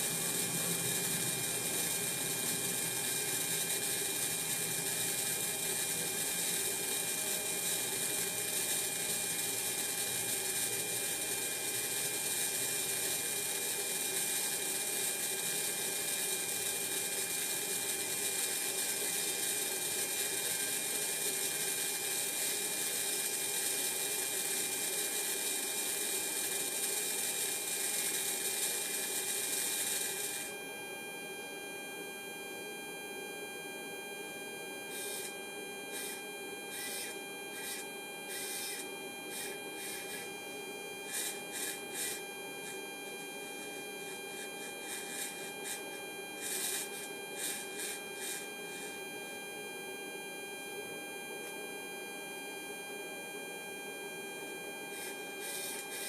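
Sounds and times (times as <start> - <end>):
servo motor whirring: 34.9 - 35.3, 35.9 - 40.4, 41.1 - 42.8, 43.7 - 48.5, 54.9 - 56.0.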